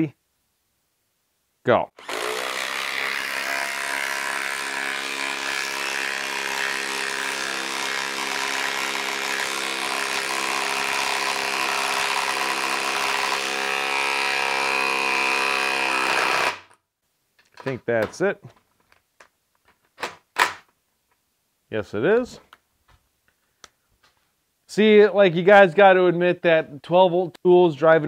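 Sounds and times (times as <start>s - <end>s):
impact driver hammering: 2.0s - 16.8s.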